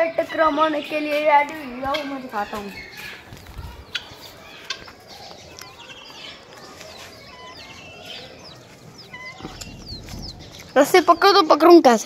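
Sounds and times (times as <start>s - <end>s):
fowl clucking: 1.8s - 5.2s, 5.8s - 10.7s.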